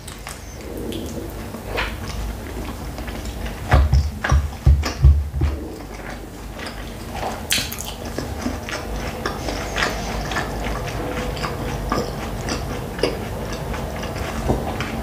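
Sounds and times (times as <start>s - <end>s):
wet chewing mouth clicks: 0.0s - 15.0s.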